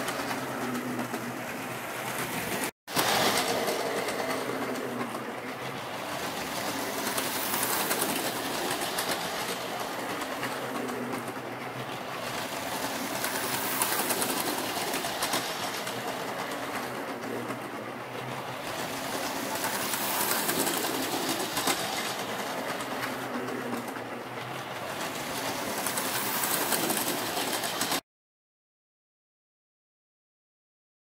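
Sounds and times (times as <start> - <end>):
wheels clicking on rails: 0.0 - 28.0
toy train motor whirring: 2.3 - 17.8, 18.4 - 24.0, 24.7 - 28.0.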